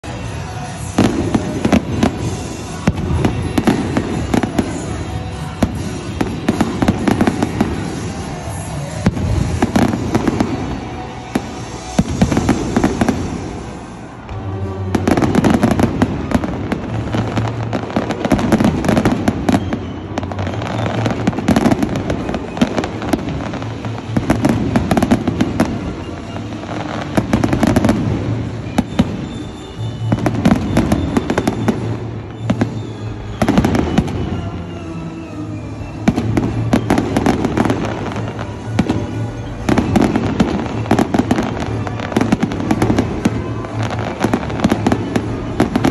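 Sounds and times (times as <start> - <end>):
fireworks booming and crackling: 0.0 - 45.9.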